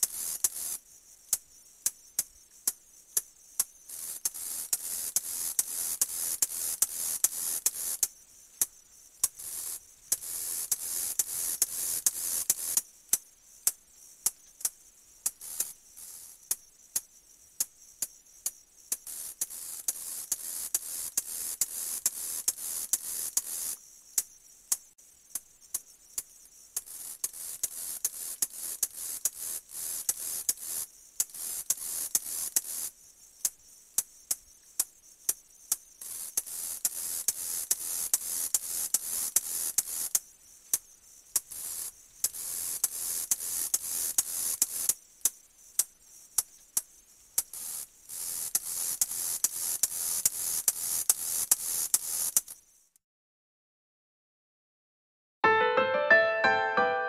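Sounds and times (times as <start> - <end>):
grasshopper clicking: 0.0 - 53.0
grasshopper hissing buzz: 9.4 - 12.8, 41.5 - 44.9, 47.5 - 52.6.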